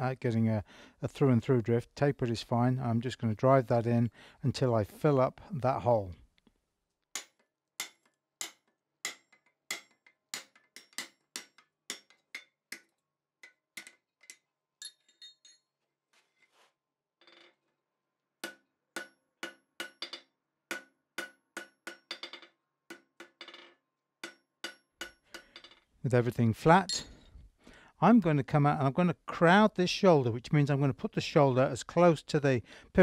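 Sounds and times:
hammer striking steel on anvil: 7.2 - 15.6, 18.4 - 23.4, 24.2 - 25.8
faint metal clinks: 14.8 - 15.7.

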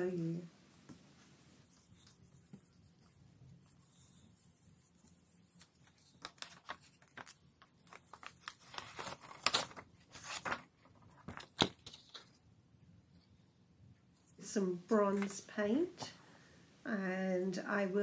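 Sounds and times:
paper rustling and crinkling: 5.6 - 12.4.

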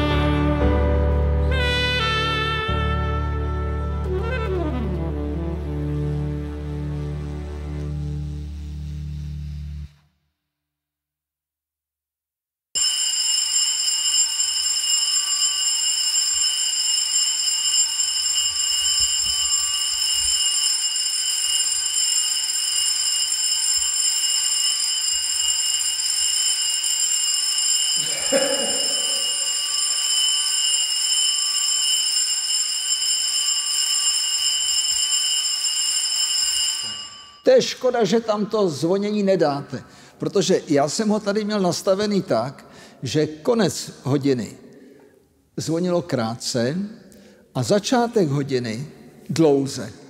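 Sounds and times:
electric bell ringing: 12.8 - 38.2.

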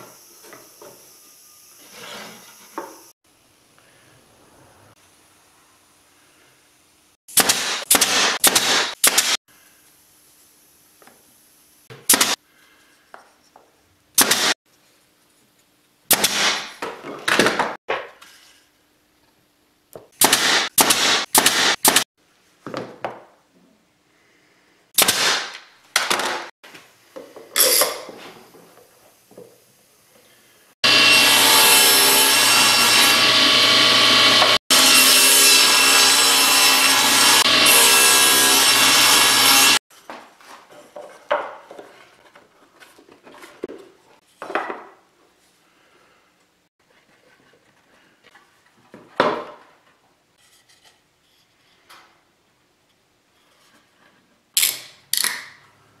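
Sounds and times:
power tool working wood: 30.8 - 39.8.

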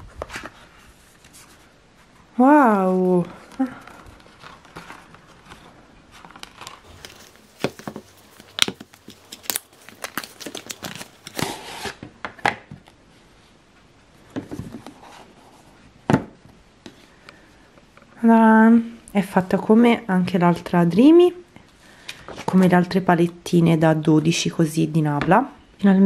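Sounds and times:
cardboard rustling and scraping: 0.0 - 2.3, 3.0 - 12.1, 14.3 - 15.9.

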